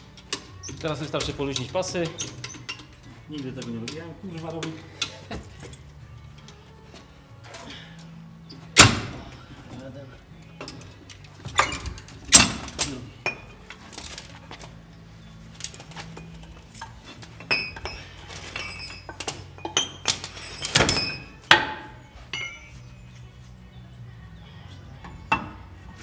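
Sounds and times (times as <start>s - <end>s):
ratchet straps clicking and clinking: 0.1s - 6.6s.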